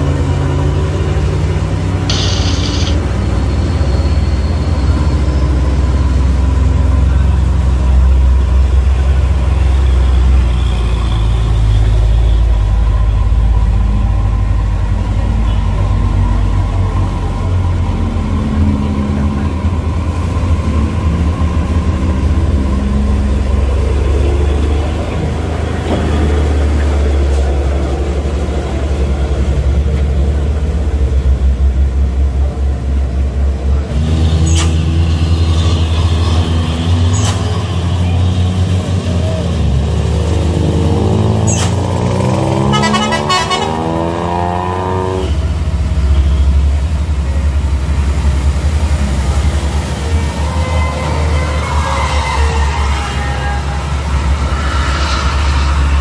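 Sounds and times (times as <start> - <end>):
truck and car engines running: 0.0 - 56.0
vehicle horns honking: 2.1 - 3.1, 42.2 - 44.4.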